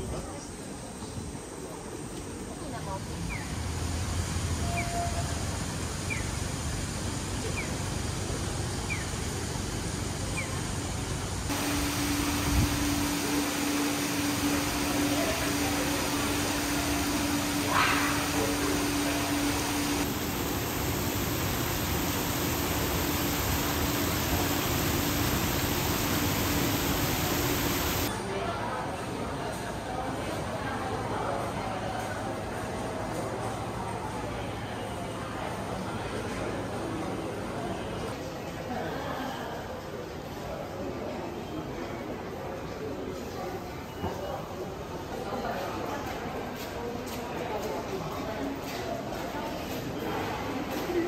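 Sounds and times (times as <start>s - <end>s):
street noise: 0.0s - 38.8s
low traffic rumble: 1.5s - 28.1s
steady rushing noise: 11.5s - 28.1s.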